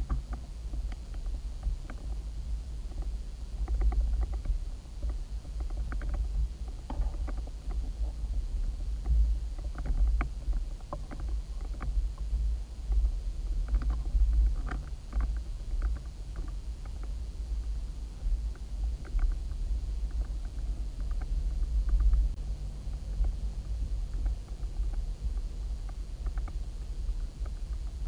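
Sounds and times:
faint clicks and ticks: 0.0s - 28.0s
underwater rumble of moving water: 0.0s - 28.0s.

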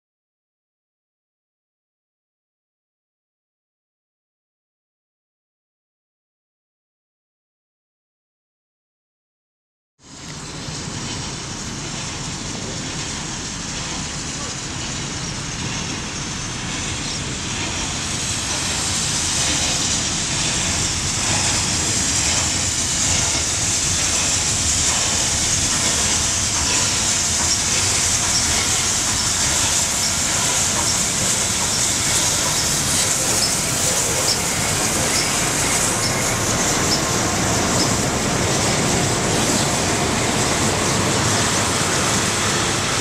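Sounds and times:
train wheels rumbling on rail: 10.0s - 43.0s
steam hissing: 10.1s - 43.0s.

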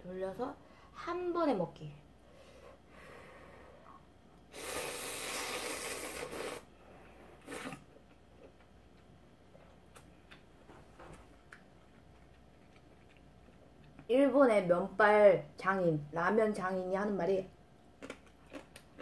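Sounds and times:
noodles being slurped: 4.5s - 6.7s, 7.4s - 8.0s
faint chewing clicks: 11.4s - 14.1s, 18.0s - 19.0s.

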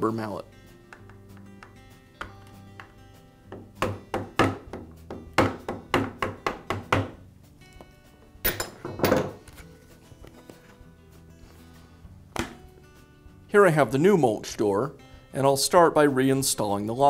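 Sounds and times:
faint background music: 0.0s - 17.0s.

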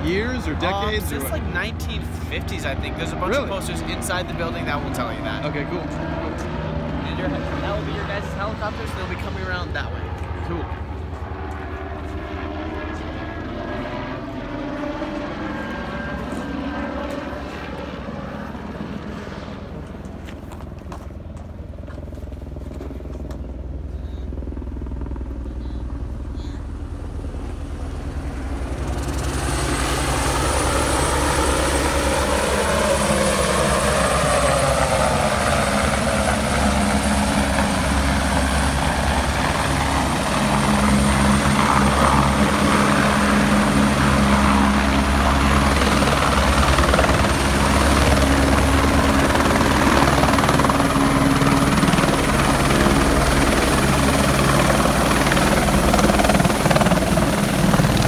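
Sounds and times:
helicopter rotor and engine: 0.0s - 58.0s.

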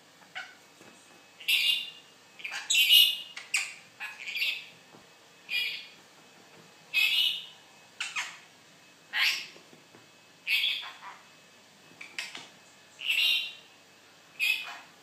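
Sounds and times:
parrot squawking harshly: 1.4s - 4.6s, 7.0s - 8.4s, 9.1s - 9.5s, 10.5s - 11.2s, 14.4s - 14.9s.

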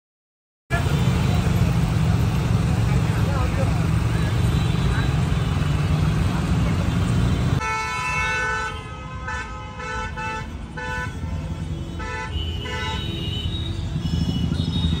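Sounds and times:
low hum of traffic: 0.7s - 15.0s
car horns honking: 4.0s - 5.8s, 7.0s - 15.0s.

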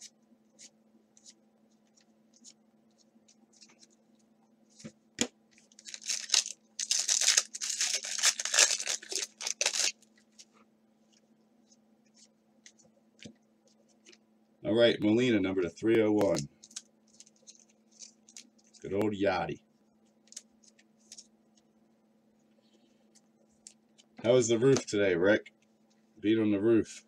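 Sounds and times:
wrapper tearing and crinkling: 5.7s - 10.0s.

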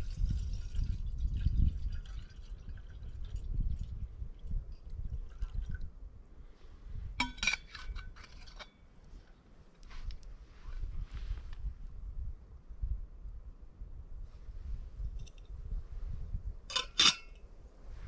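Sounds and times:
liquid trickling and dripping: 0.0s - 5.9s
cookware clinking: 7.2s - 8.0s, 16.7s - 17.3s.

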